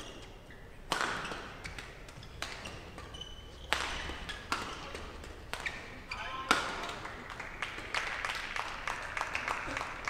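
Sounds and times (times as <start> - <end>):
shoe squeaks on court floor: 0.0 - 4.9, 5.6 - 6.4
rackets hitting shuttlecock: 0.0 - 8.2.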